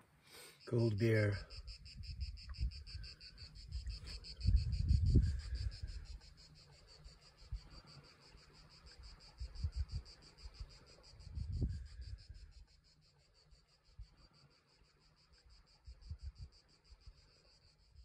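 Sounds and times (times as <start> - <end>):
crickets chirping: 0.0 - 18.0
low rumbles on microphone: 3.6 - 6.0.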